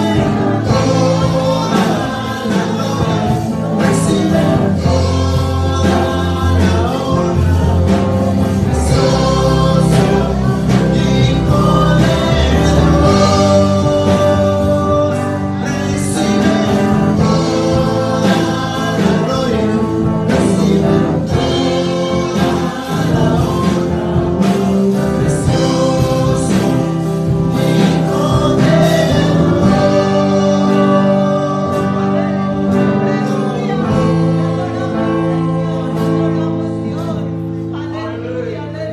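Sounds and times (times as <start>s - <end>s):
girl and man singing: 0.0s - 38.9s
instrumental backing: 0.0s - 38.9s.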